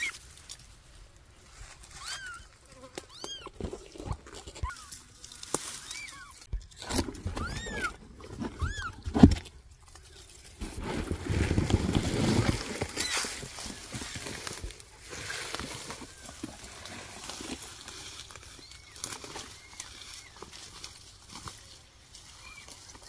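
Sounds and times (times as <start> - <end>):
pine needles and undergrowth rustling: 0.0 - 23.0
cardboard box handled: 10.6 - 17.8.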